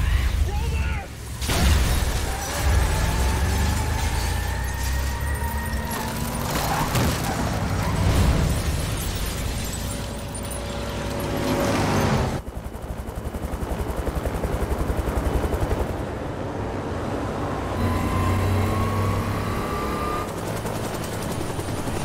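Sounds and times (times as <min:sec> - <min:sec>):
rumble of debris: 0:01.3 - 0:11.5
helicopter rotor beating: 0:09.2 - 0:22.0.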